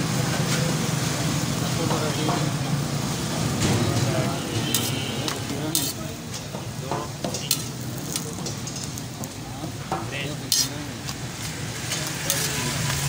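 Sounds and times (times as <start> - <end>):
bread sizzling on a griddle: 0.0 - 13.0
spatula clinking on a griddle: 3.6 - 11.2, 11.9 - 13.0
metal spatula scraping a griddle: 3.7 - 6.6, 7.3 - 9.1, 10.3 - 13.0.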